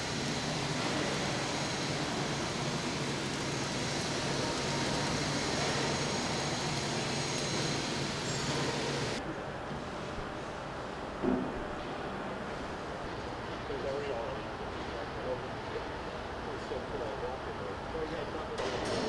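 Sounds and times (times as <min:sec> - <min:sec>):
welding arc crackling hiss: 0:00.0 - 0:09.2.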